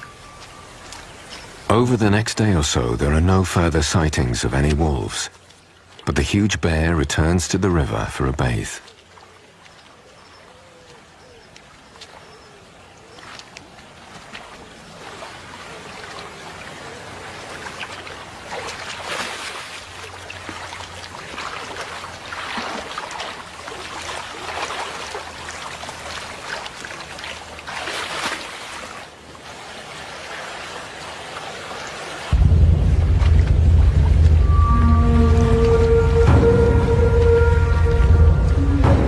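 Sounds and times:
bear wading and splashing: 2.8 - 39.0
river water rushing: 11.6 - 39.0.

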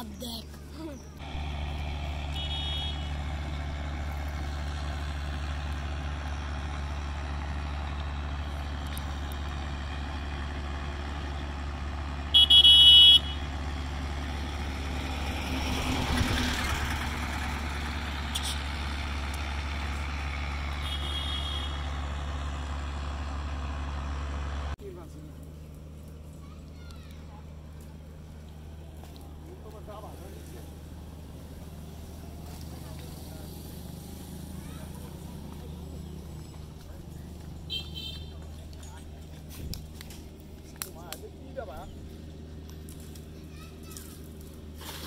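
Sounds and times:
traffic engine drone: 0.0 - 45.0
vehicle passing: 0.0 - 45.0
electronic horn beeps: 2.2 - 3.2, 12.4 - 13.4, 20.8 - 21.9, 37.7 - 38.3.

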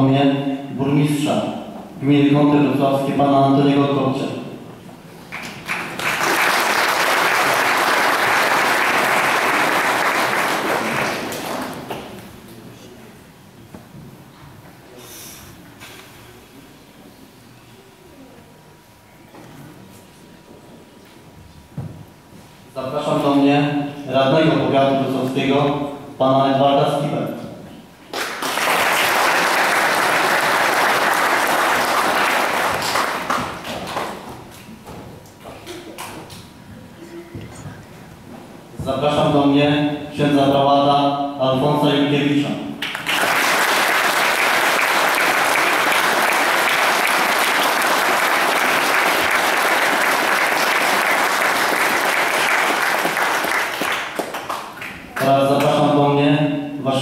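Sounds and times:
congregation applauding: 5.2 - 12.2, 28.1 - 34.3, 42.8 - 55.8.

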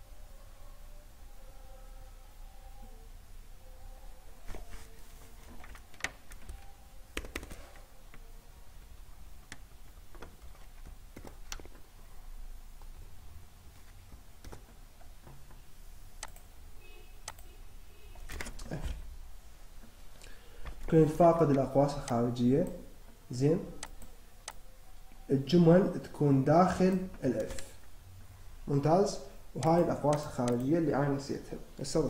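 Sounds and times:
faint low hum: 0.0 - 32.0
keyboard keystrokes and clicks: 5.4 - 8.3, 9.4 - 12.0, 13.8 - 15.6, 16.2 - 16.5, 17.2 - 17.5, 18.2 - 18.9, 20.6 - 22.8, 23.6 - 24.6, 26.8 - 27.9, 29.6 - 30.7.

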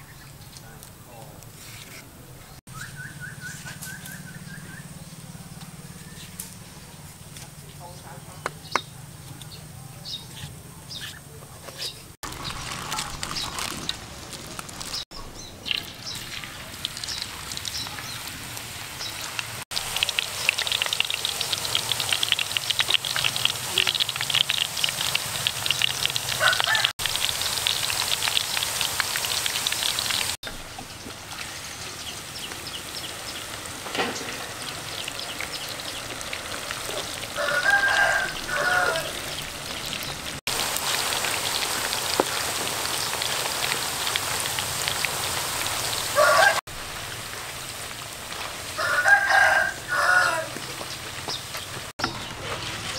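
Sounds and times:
deep-frying sizzle in oil: 12.2 - 52.9
chicken calling: 25.6 - 30.4, 36.8 - 40.4, 45.7 - 46.6, 48.8 - 50.9.

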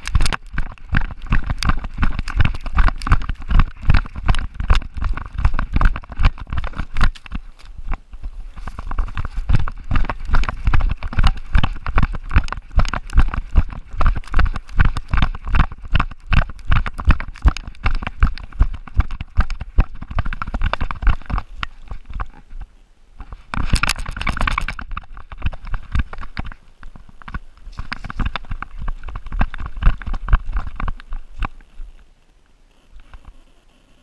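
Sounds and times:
dog running footfalls: 0.0 - 22.3, 27.8 - 31.5
leaves rustling underfoot: 0.0 - 33.9.

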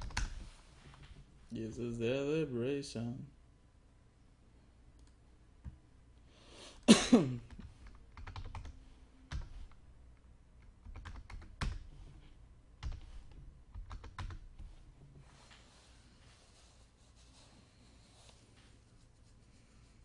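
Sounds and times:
keyboard keystrokes: 12.8 - 14.4.

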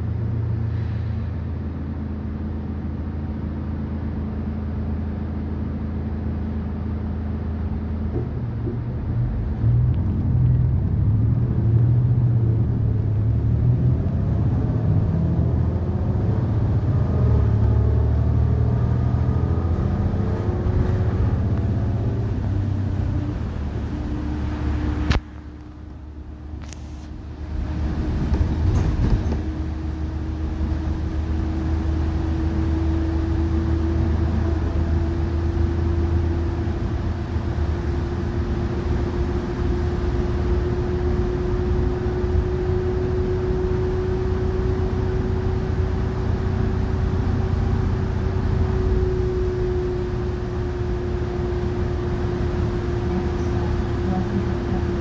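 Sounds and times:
bus engine rumble: 0.0 - 55.0
drivetrain whine: 0.0 - 55.0
tyre hiss on wet road: 0.6 - 1.4, 26.6 - 27.1.

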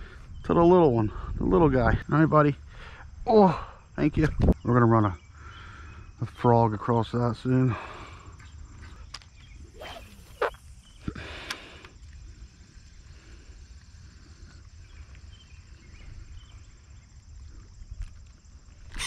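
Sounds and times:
faint outdoor background: 0.0 - 19.0
fishing line clicking out: 9.1 - 12.2
fishing rod whoosh: 9.6 - 10.7.

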